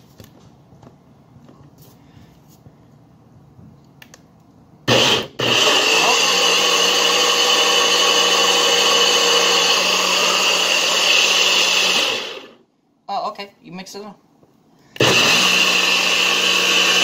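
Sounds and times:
blender running with high whine: 4.9s - 12.6s, 15.0s - 17.0s.

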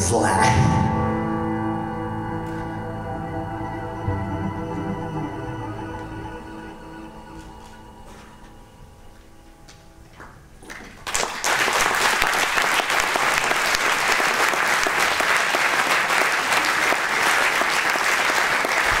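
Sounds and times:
faint music notes: 0.3s - 11.0s
audience applauding: 10.6s - 19.0s.

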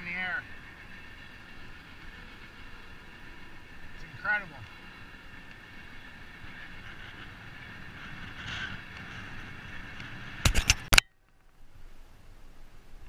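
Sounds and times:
bicycle road and wind noise: 0.0s - 13.0s.

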